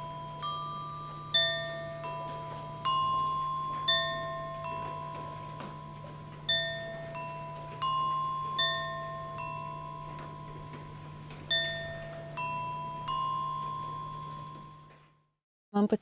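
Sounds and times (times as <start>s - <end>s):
bell-like metal notes: 0.0s - 15.2s.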